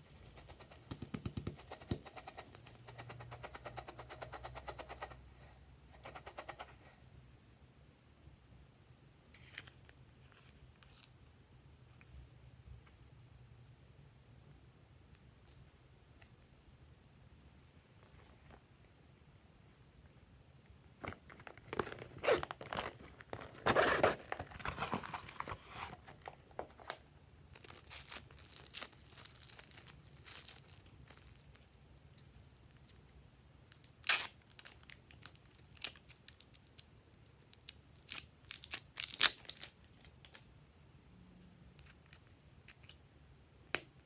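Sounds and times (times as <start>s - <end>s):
plastic crinkling and peeling: 21.0s - 31.7s, 34.0s - 40.4s.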